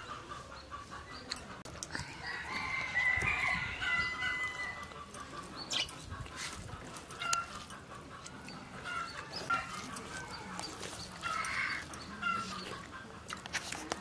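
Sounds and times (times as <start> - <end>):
chicken clucks and chirps: 0.0 - 14.0
rooster crowing: 2.0 - 4.9.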